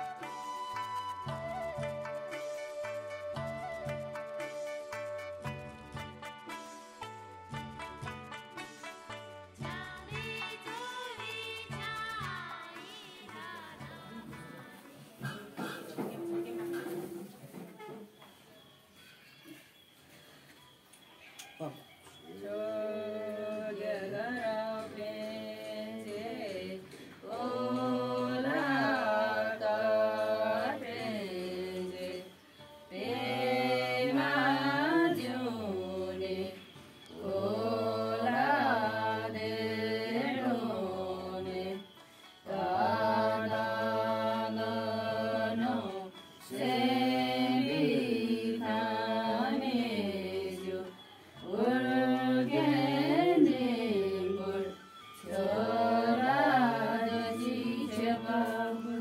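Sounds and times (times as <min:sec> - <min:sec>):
person singing slow song: 0:09.6 - 0:17.3, 0:22.2 - 0:59.0.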